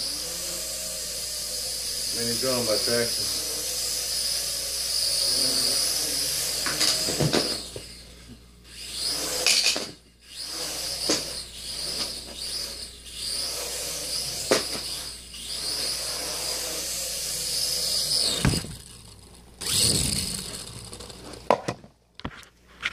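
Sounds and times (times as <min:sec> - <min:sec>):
quadcopter motors whining: 0:00.0 - 0:21.5
thump: 0:18.4 - 0:18.8.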